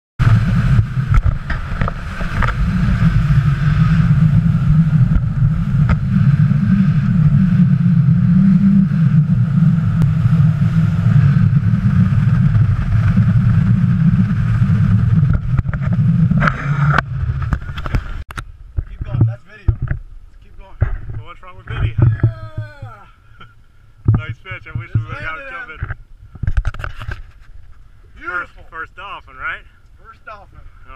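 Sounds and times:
outboard motor drone: 0.2 - 20.0, 20.8 - 27.2
wind buffeting microphone: 0.2 - 23.0.

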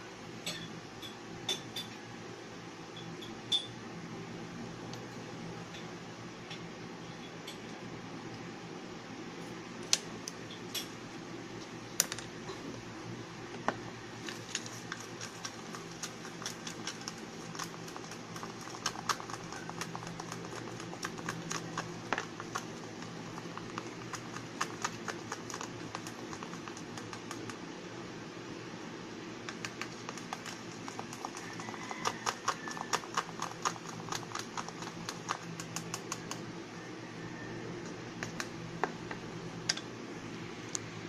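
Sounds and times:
steady low hum: 0.0 - 41.0
stirrer tapping plastic cup: 14.4 - 27.6, 29.5 - 36.4.

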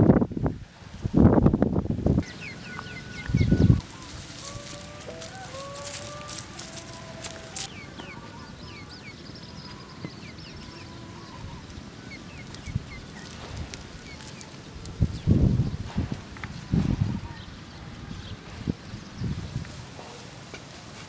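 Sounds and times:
small birds chirping: 2.1 - 21.0
hen calling: 2.2 - 18.4.

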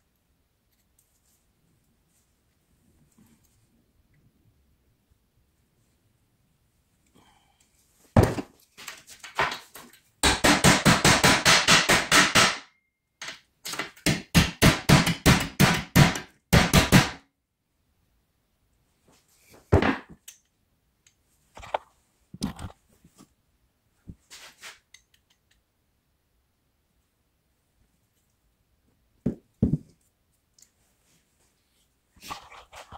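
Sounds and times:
hammer striking metal: 10.2 - 12.8, 14.0 - 17.2.

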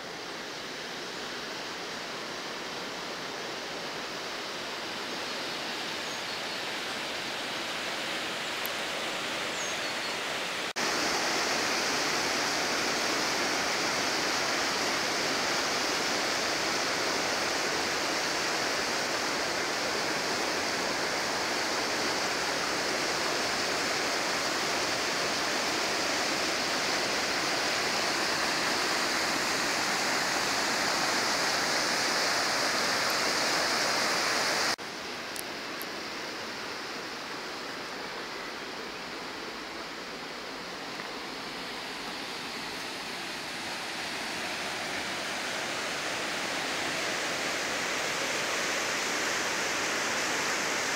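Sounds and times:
water rushing over rocks: 10.2 - 34.8, 39.0 - 50.9.

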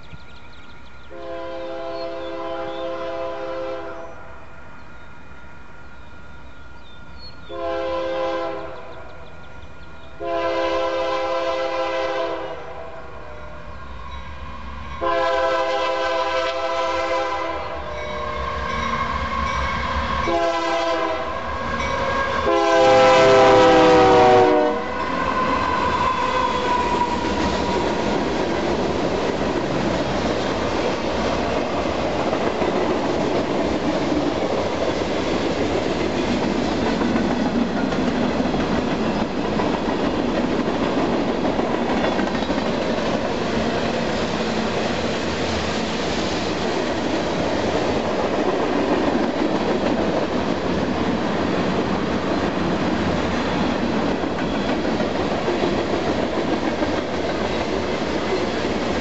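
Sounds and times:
locomotive air horn blast: 1.1 - 4.0, 7.5 - 8.8, 10.2 - 13.6, 15.0 - 19.4, 20.3 - 27.2
train wheels clacking over rails: 21.8 - 59.0.

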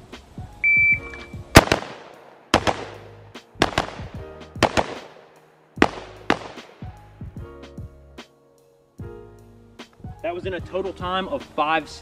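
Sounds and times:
rifle shots: 1.6 - 6.9.

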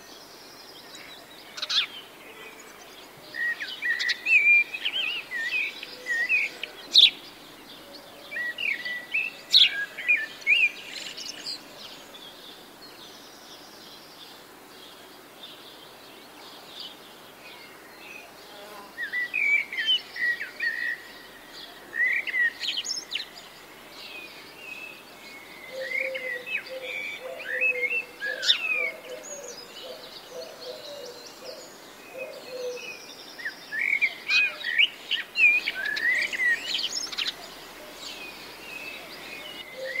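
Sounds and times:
birds chirping: 16.4 - 40.0.

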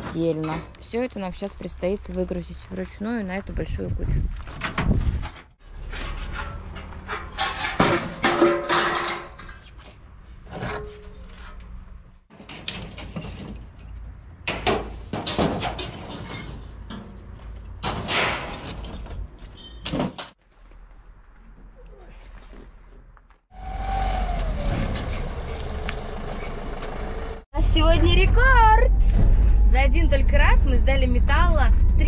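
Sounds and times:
scrap metal clanking and crashing: 4.5 - 11.6, 12.3 - 20.4.

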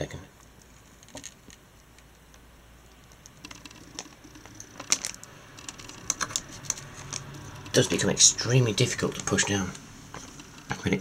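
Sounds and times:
small metallic clicks and scrapes: 0.4 - 8.1
metal lever grinding: 3.4 - 8.1.

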